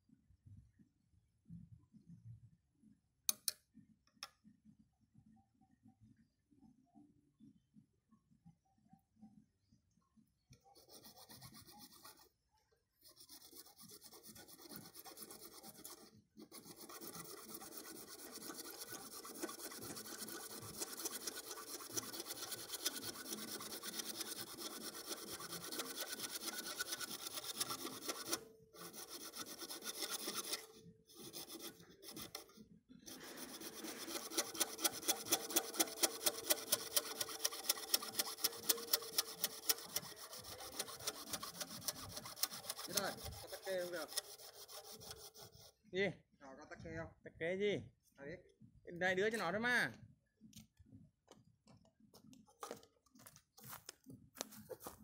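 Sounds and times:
blade scraping plastic pipe: 0:10.8 - 0:12.3, 0:13.0 - 0:45.8.

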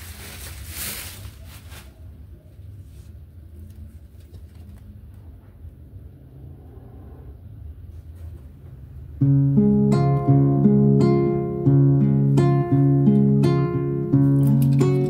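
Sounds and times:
paper card clicks and rustles: 0:03.6 - 0:05.2
strummed acoustic guitar music: 0:09.2 - 0:15.0.

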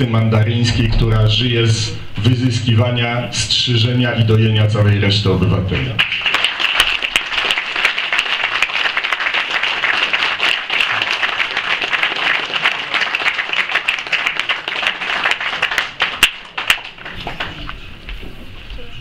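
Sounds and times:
audience applauding: 0:05.8 - 0:17.8.

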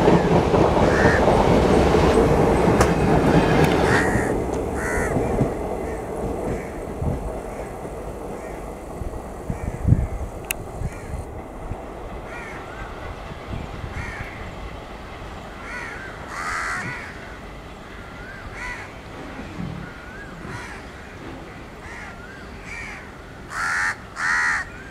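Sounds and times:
train rumbling: 0:00.0 - 0:24.9
crows cawing: 0:00.8 - 0:01.3, 0:03.8 - 0:07.8, 0:08.4 - 0:08.7, 0:09.5 - 0:10.2, 0:10.8 - 0:11.3, 0:12.3 - 0:13.0, 0:13.9 - 0:14.5, 0:15.6 - 0:18.9, 0:19.8 - 0:21.1, 0:21.8 - 0:24.9.

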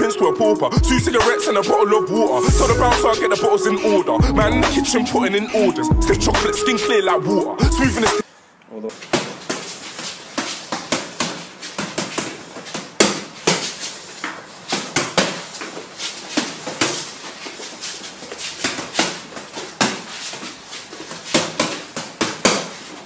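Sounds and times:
boxing gloves smacking pads: 0:09.0 - 0:17.2, 0:18.0 - 0:22.8.

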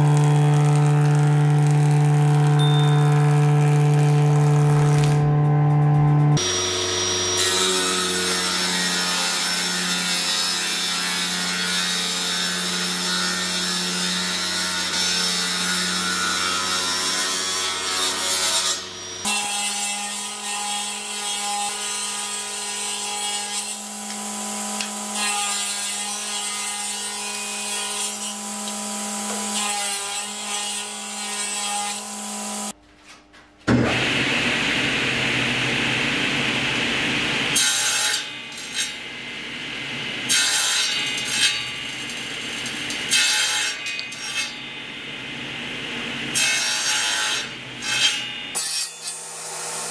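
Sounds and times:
slotting cutter cutting wood: 0:00.0 - 0:05.3, 0:17.2 - 0:32.8
table saw cutting wood: 0:00.0 - 0:32.8, 0:33.7 - 0:44.7, 0:45.6 - 0:49.9.

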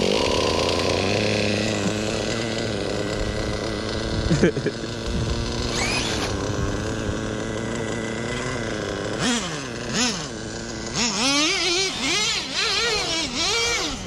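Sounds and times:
rc car engine revving: 0:00.0 - 0:14.0.

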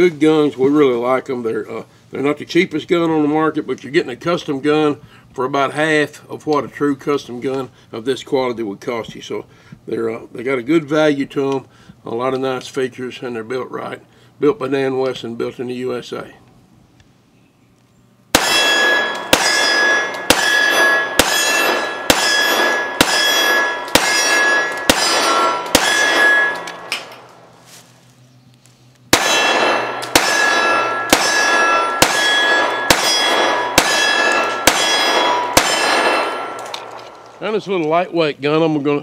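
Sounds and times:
pistol shots: 0:18.3 - 0:27.3, 0:29.1 - 0:37.4
steel target ringing clang: 0:18.3 - 0:27.3, 0:29.1 - 0:37.5.

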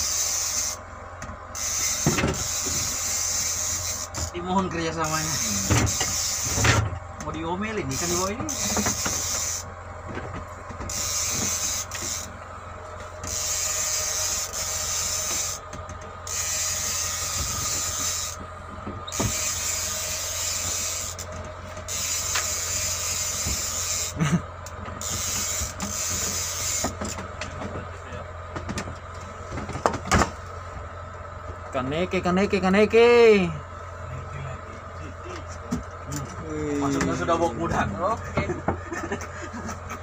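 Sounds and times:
boat machinery humming: 0:00.0 - 0:40.0.

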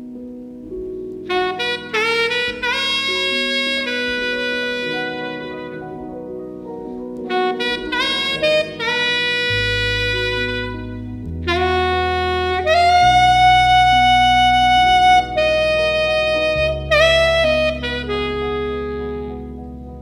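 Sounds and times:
recorded bass and chords backing: 0:00.0 - 0:20.0
saxophone improvising jazzy melody: 0:00.0 - 0:20.0.

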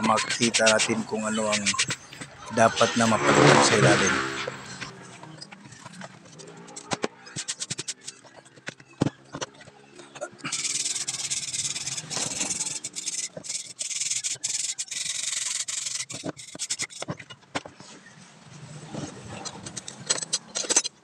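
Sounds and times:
scraper rasping on metal: 0:00.0 - 0:04.9, 0:10.4 - 0:17.3
metal parts knocking and clicking: 0:05.4 - 0:17.7, 0:19.4 - 0:21.0.

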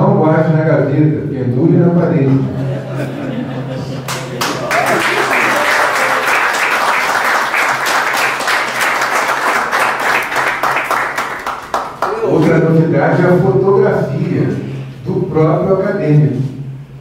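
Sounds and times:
audience applause: 0:04.0 - 0:12.4.

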